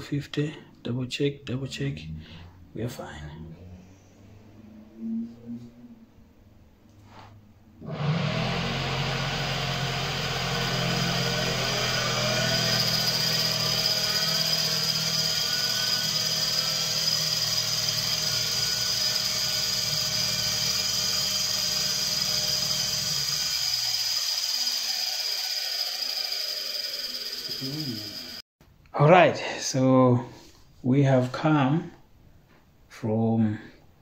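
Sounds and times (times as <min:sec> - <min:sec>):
electric motor high whine: 0:07.8 - 0:28.4.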